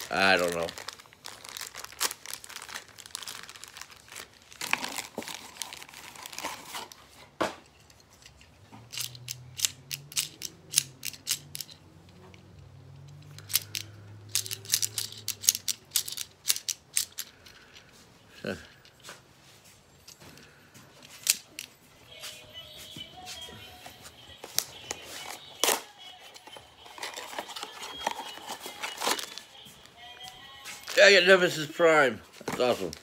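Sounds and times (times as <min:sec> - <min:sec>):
plastic wrapping crinkling: 0:00.0 - 0:07.2, 0:23.4 - 0:31.6
plastic toy clicks: 0:08.9 - 0:11.8, 0:13.2 - 0:17.6.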